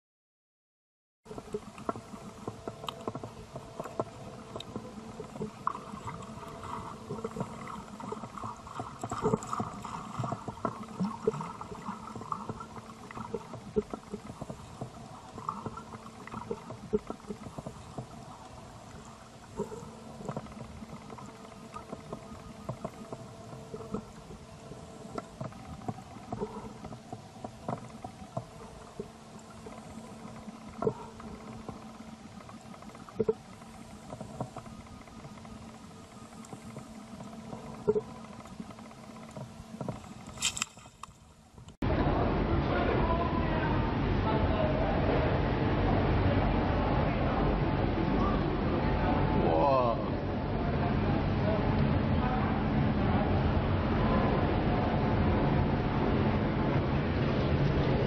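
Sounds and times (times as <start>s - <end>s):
water movement: 1.3s - 41.8s
steady low underwater hum: 1.3s - 58.0s
short crackling clicks: 25.0s - 41.8s.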